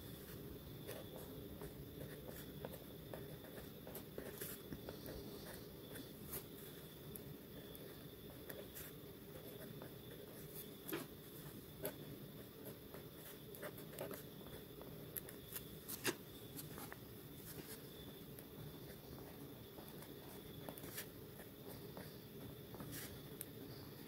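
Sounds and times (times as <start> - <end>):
faint steady hum: 0.0 - 24.0
pen scratching on paper: 0.8 - 16.2.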